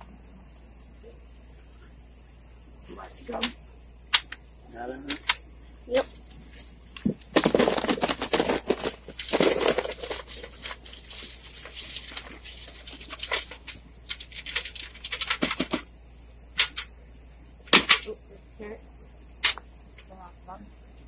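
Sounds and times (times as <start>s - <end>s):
shells clattering into tub: 5.1s - 15.9s.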